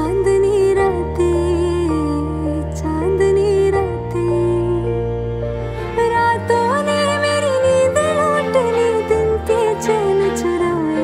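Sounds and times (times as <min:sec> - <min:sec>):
slow gliding melody: 0:00.0 - 0:11.0.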